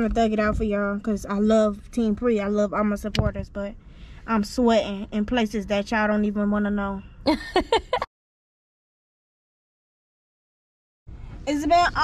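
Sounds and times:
woman's voice: 0.0 - 8.1, 11.4 - 12.0.

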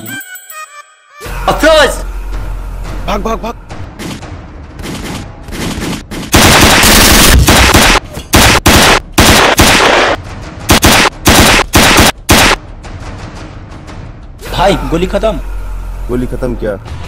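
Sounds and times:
rapid gunfire bursts: 4.8 - 12.6.

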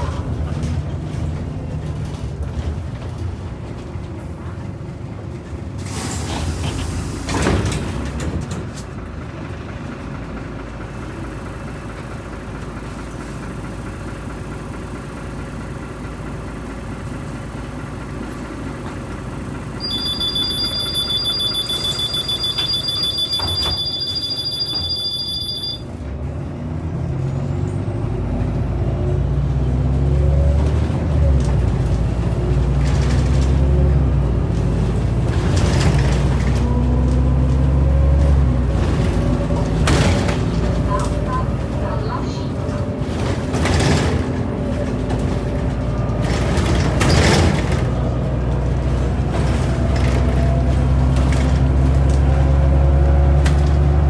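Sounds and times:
bus diesel engine running: 0.0 - 54.0
two-tone electronic warning beep: 19.8 - 25.9.

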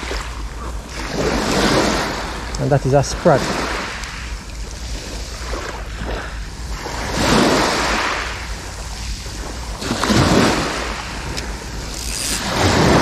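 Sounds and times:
wind rumbling on microphone: 0.0 - 13.0
waves washing on pebble beach: 0.9 - 4.2, 4.9 - 13.0.

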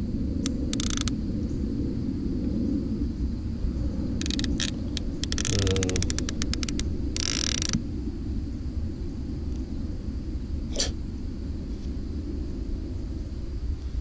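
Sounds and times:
low steady rumble: 0.0 - 14.0
fishing reel ratchet clicking: 0.5 - 1.1, 4.2 - 7.8.

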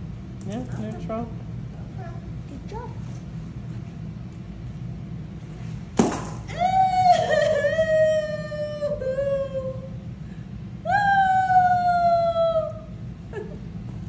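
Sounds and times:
woman fake crying wail: 6.5 - 10.0, 10.9 - 12.8.

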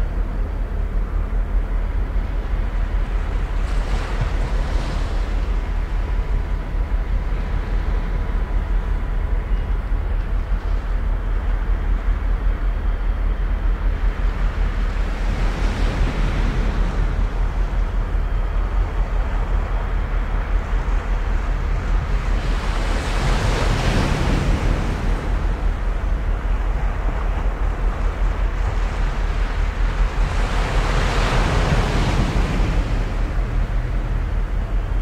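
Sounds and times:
wind rumbling on microphone: 0.0 - 35.0
small waves washing on shore: 2.8 - 8.4, 18.7 - 34.7.

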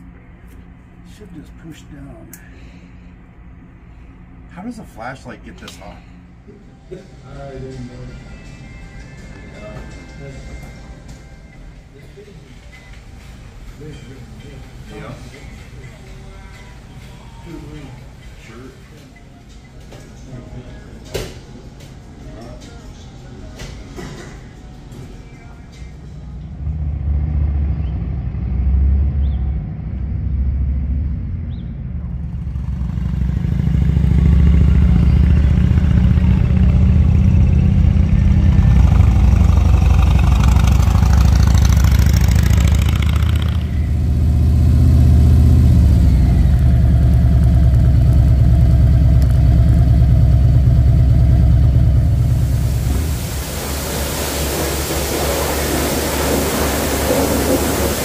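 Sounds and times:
motorcycle engine running: 31.9 - 58.0
pressure washer spraying: 38.8 - 44.3, 52.1 - 58.0.

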